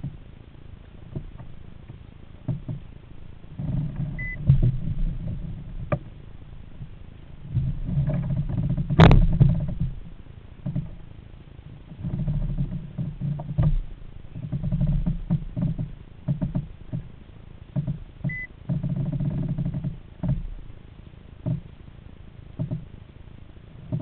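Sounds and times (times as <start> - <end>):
low rumbling scuffing: 0.0 - 10.1
fish handling on plastic kayak: 0.0 - 20.8.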